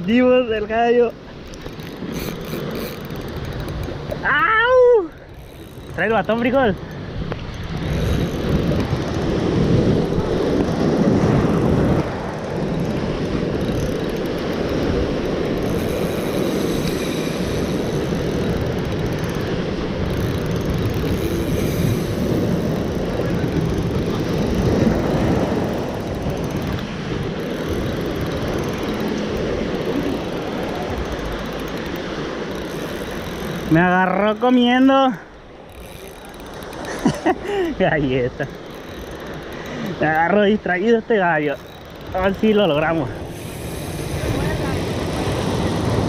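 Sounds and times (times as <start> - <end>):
surf on the shore: 0.0 - 46.0
wind on microphone: 1.7 - 33.8, 41.5 - 46.0.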